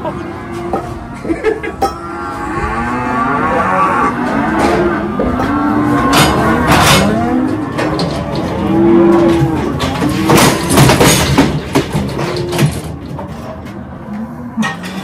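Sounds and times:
cattle bawling: 0.0s - 11.0s
metallic clanks: 0.5s - 2.2s, 4.2s - 15.0s.

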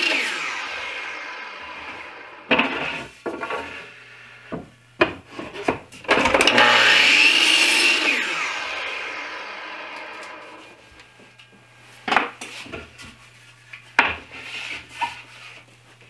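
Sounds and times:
miter saw cutting board: 0.0s - 4.6s, 5.6s - 13.1s.

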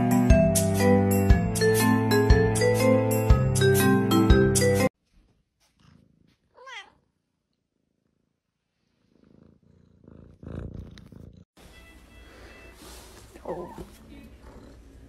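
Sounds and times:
kitten purring: 5.7s - 11.5s, 13.3s - 15.0s
kitten meowing: 6.6s - 7.0s.

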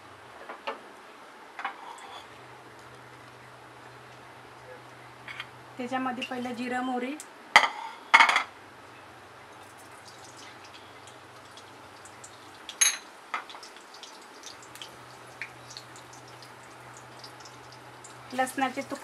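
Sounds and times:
seeds crackling in hot oil: 9.6s - 19.0s.

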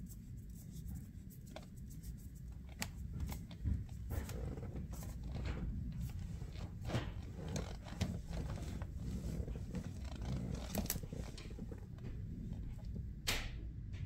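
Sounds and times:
shifter boot rustling and creaking: 2.7s - 13.0s.

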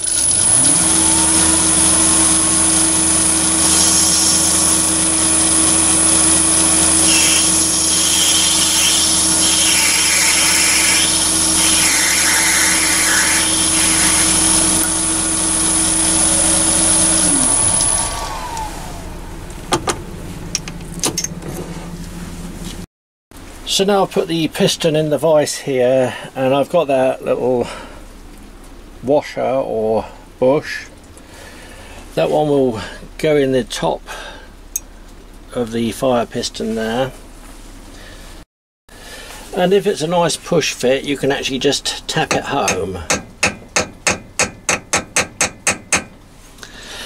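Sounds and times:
tool cutting spinning metal: 0.0s - 18.6s, 42.2s - 46.1s
lathe motor whining: 0.0s - 19.8s.

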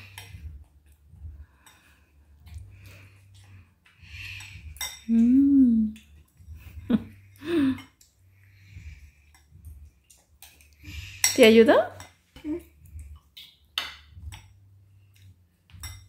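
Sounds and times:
spoons clinking against bowls: 4.0s - 5.2s, 9.2s - 12.4s, 15.7s - 16.0s.

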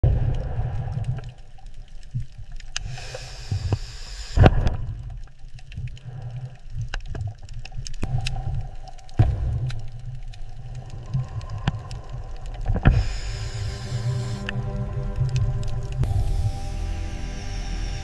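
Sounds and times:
bubbling: 0.0s - 17.1s
small clicks: 0.8s - 14.6s
low underwater rumble: 4.4s - 18.0s
hissing rush: 10.4s - 14.8s, 16.0s - 18.0s.

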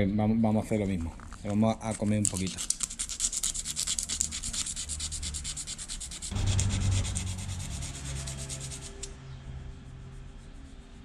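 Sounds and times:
sandpaper rubbing by hand: 1.6s - 9.1s
low hum: 6.2s - 11.0s.

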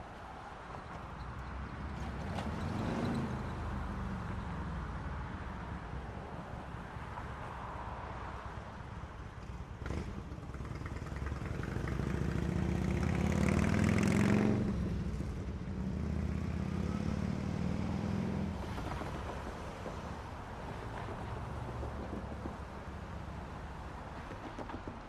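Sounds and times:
motor vehicle passing by: 1.7s - 4.6s, 9.8s - 24.0s.

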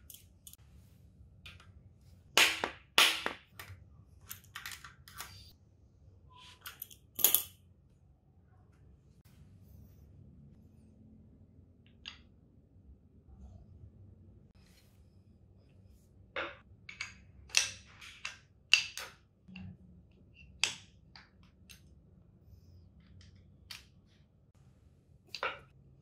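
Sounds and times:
metal parts clicking and clanking: 0.0s - 0.6s, 6.4s - 7.6s.

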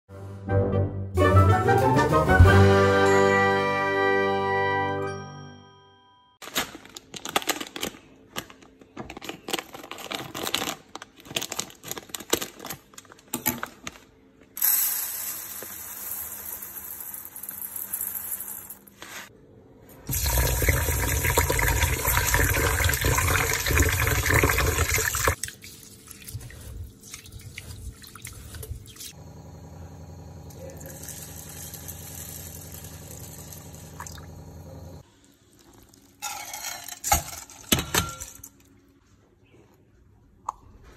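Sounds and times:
rice pouring into metal bowl: 14.6s - 18.8s
tap water running: 20.1s - 26.5s, 30.9s - 34.6s.

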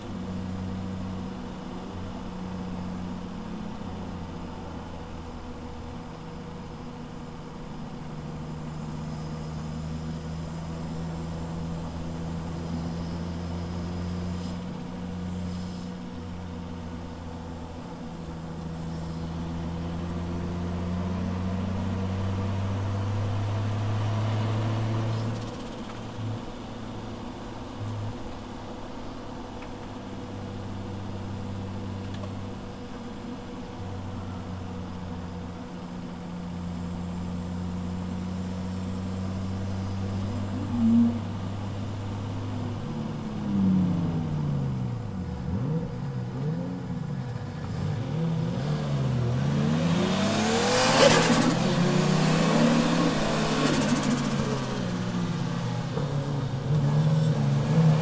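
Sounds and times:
car engine revving inside cabin: 0.0s - 58.0s
engine throttle blips: 38.4s - 48.1s.

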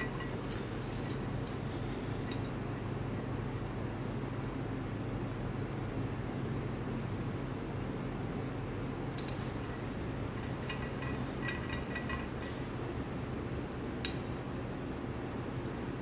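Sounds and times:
small clicks and clinks: 0.0s - 2.6s, 9.2s - 12.8s
low room hum: 0.0s - 16.0s.

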